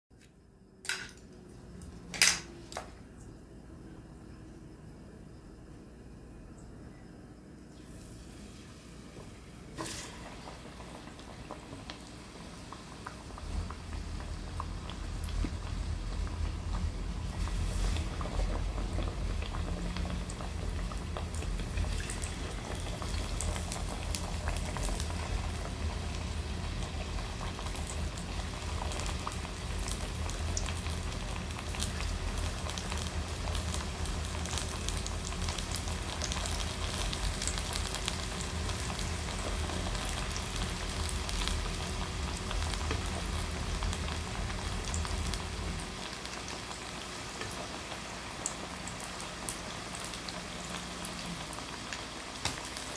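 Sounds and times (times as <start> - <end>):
food frying in hot oil: 7.7 - 52.9.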